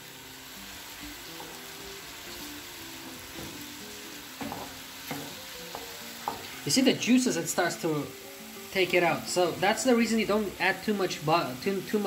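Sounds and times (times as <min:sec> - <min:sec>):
chicken sizzling in a pan: 0:00.0 - 0:12.0
wooden spoon knocking: 0:04.4 - 0:06.5.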